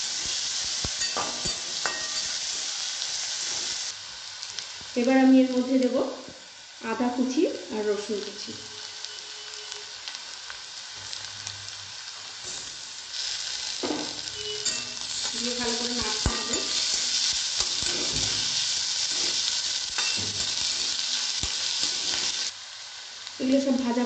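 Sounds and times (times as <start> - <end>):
onions sizzling in hot oil: 0.0 - 24.0
spatula scraping a pan: 14.4 - 22.5.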